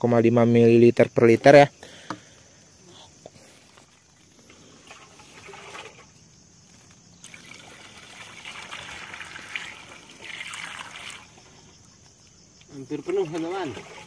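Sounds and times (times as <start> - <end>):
water pouring into plastic tank: 4.4 - 6.2, 7.2 - 11.7, 12.7 - 14.0.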